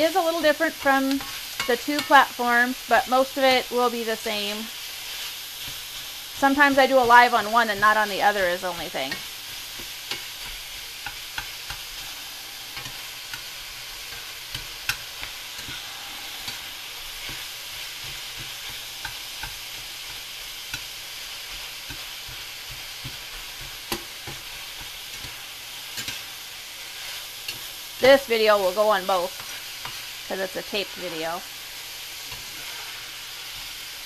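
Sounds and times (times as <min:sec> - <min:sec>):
sausage sizzling in a skillet: 0:00.0 - 0:34.0
spatula scraping a pan: 0:00.0 - 0:34.0.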